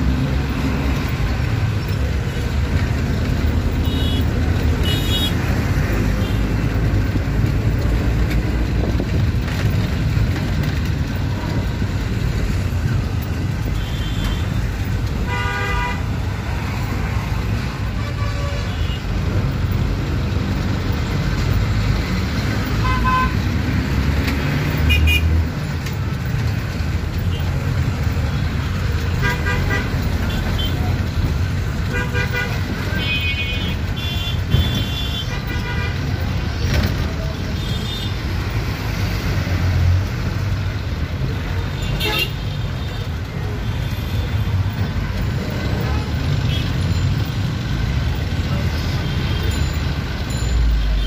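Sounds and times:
vehicle engine and road noise: 0:00.0 - 0:51.0
traffic horns tooting: 0:03.7 - 0:06.6, 0:13.4 - 0:16.9, 0:17.5 - 0:19.3, 0:22.6 - 0:23.5, 0:24.7 - 0:25.4, 0:28.3 - 0:38.5, 0:41.7 - 0:44.6.

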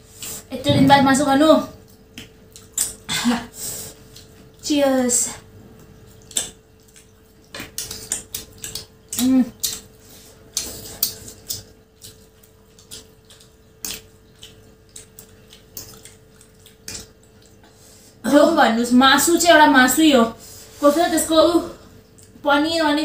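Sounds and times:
noodles slurped and chewed: 0:05.6 - 0:17.8.

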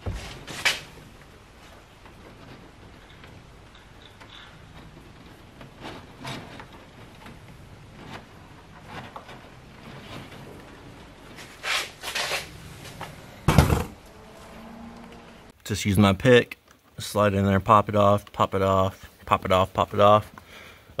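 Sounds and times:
rustles and scrapes of plastic trim: 0:00.0 - 0:13.3
loud clunk: 0:12.1 - 0:14.1.

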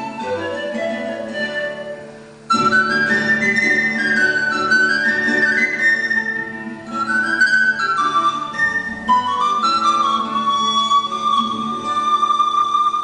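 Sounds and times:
classical guitar: 0:00.0 - 0:13.0
pan flute melody: 0:00.0 - 0:13.0.

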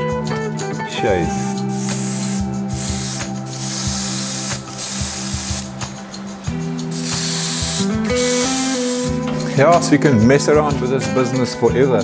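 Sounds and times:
background music: 0:00.0 - 0:12.0
airbrush spraying hissing bursts: 0:01.1 - 0:09.2.

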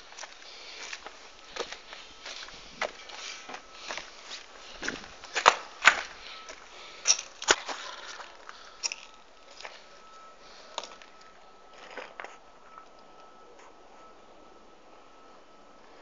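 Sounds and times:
footsteps crunching on rubble: 0:00.0 - 0:12.5.

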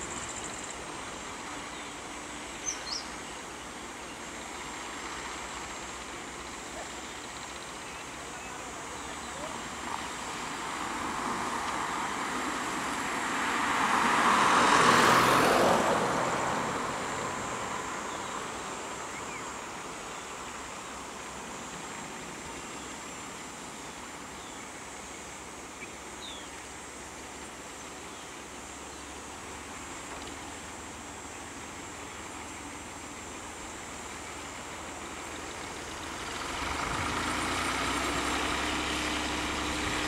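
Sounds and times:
low traffic hum: 0:00.0 - 0:40.0
vehicle passing by: 0:08.9 - 0:19.0, 0:34.1 - 0:40.0.

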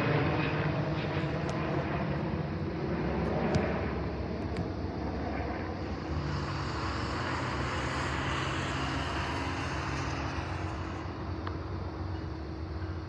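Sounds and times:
engine rumble: 0:00.0 - 0:13.0
rushing noise: 0:05.7 - 0:12.2.

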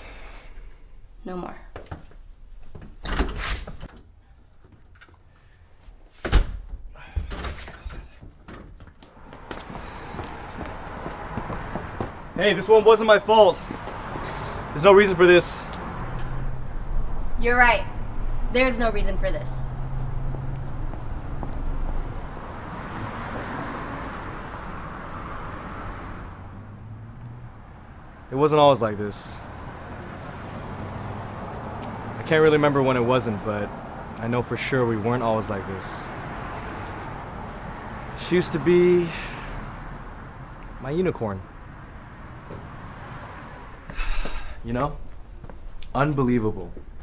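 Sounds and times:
front door slamming: 0:06.2 - 0:08.8
car driving past: 0:09.2 - 0:28.4, 0:29.1 - 0:45.7.

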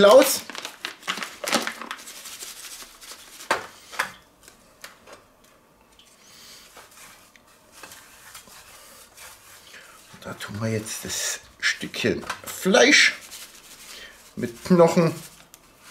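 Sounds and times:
paper bag rustling: 0:00.0 - 0:03.8
hands rubbing meat: 0:01.2 - 0:03.7, 0:12.8 - 0:15.9.

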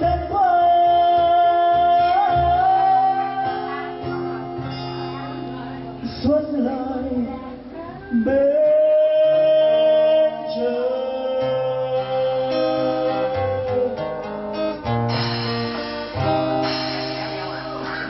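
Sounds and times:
man singing: 0:00.0 - 0:04.2, 0:06.0 - 0:14.3
cajon: 0:00.0 - 0:07.4, 0:11.5 - 0:18.0
acoustic and electric guitars: 0:00.0 - 0:18.0.

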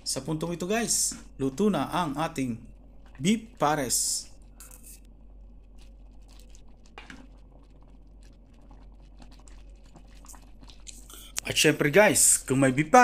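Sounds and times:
ladle stirring thick stew: 0:05.6 - 0:11.1.

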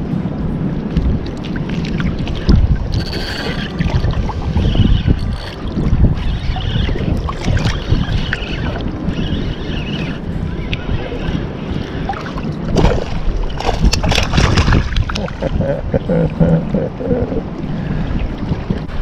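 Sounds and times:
wind buffeting microphone: 0:00.0 - 0:19.0
water sloshing and splashing: 0:00.9 - 0:15.6
fish thrashing in water: 0:12.7 - 0:15.5.

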